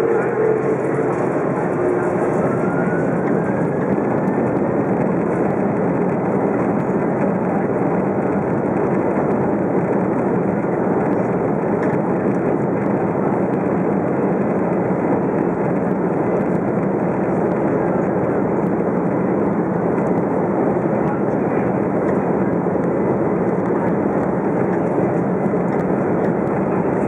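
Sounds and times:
aircraft cabin jet engine noise: 0:00.0 - 0:27.0.

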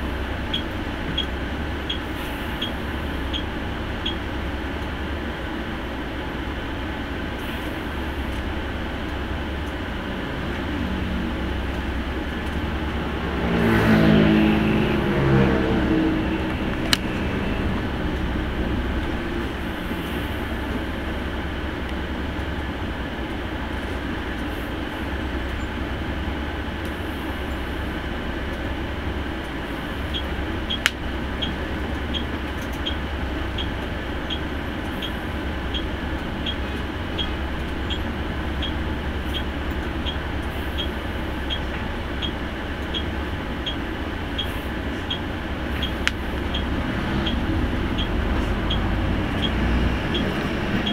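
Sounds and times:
turn signal ticking: 0:00.0 - 0:05.2, 0:08.2 - 0:50.9
bus engine drone: 0:00.0 - 0:50.9
road noise: 0:00.0 - 0:50.9.

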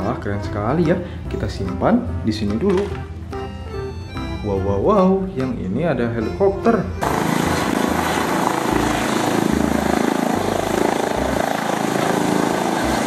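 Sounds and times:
helicopter rotor and turbine: 0:07.0 - 0:13.0.

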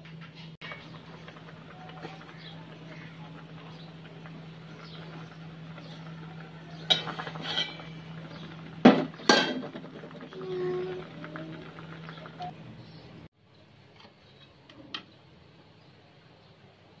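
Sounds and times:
low hum: 0:00.4 - 0:13.3
metal lid clanking: 0:06.7 - 0:09.9
metal lid scraping and clinking: 0:06.8 - 0:09.8.

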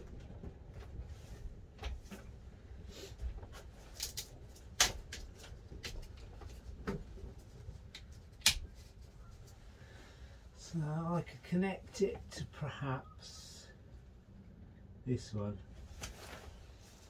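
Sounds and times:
gloved hands handling wiring: 0:03.1 - 0:09.8.

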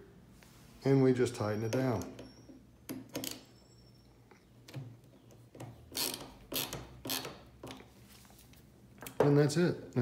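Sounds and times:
screwdriver scraping screw: 0:05.9 - 0:07.4.

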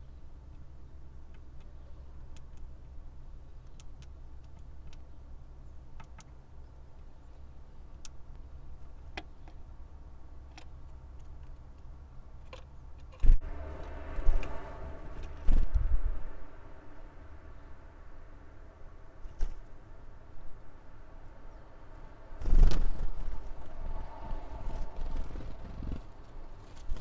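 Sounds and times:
steady low rumble: 0:00.0 - 0:27.0
faint sharp clicks: 0:03.6 - 0:05.0.

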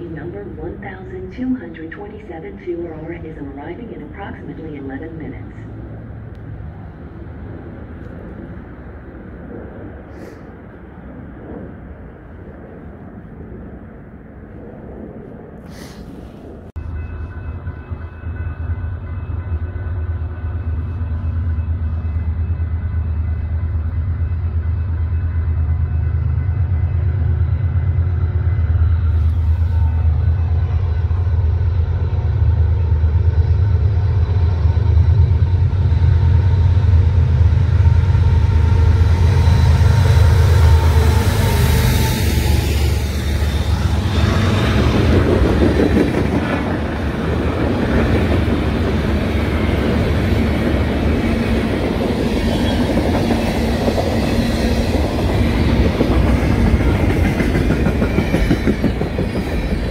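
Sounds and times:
train wheels clattering on rail: 0:44.2 - 0:59.9.

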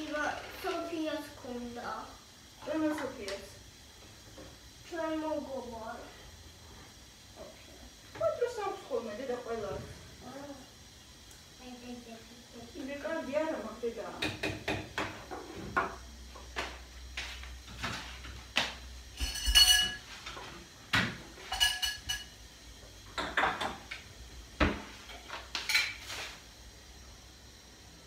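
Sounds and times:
dishes clinking: 0:19.2 - 0:20.2, 0:21.4 - 0:22.4.

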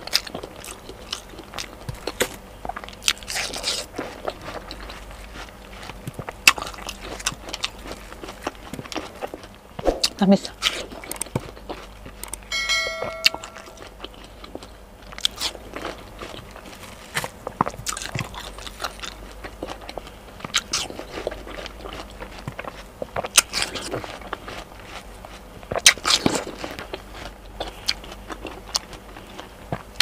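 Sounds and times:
person chewing watermelon: 0:00.0 - 0:12.6, 0:13.2 - 0:30.0
short chime: 0:12.5 - 0:13.9.

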